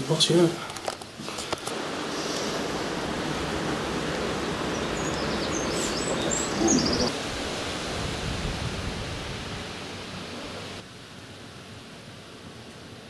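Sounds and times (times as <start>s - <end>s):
wind rushing through trees: 1.1s - 13.0s
wind buffeting microphone: 1.7s - 10.8s
faint bird chirps: 4.4s - 7.1s.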